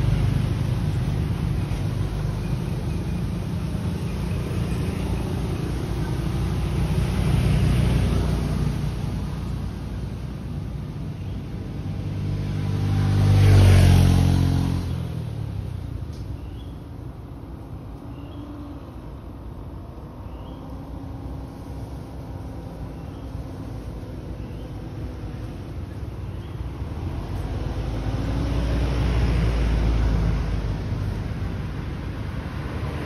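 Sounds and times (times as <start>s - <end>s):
passing vehicle engine: 0.0s - 33.0s.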